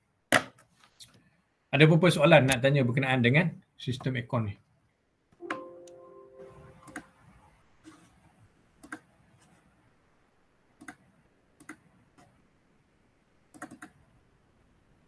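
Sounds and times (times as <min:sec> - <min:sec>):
computer mouse and key clicks: 0:06.8 - 0:07.1, 0:08.8 - 0:09.6, 0:10.8 - 0:12.4, 0:13.5 - 0:14.0.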